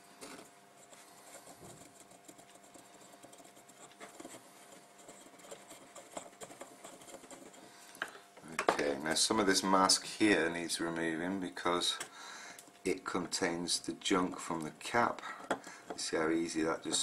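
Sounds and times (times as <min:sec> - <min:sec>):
cotton bud scrubbing circuit board: 0:00.2 - 0:07.8.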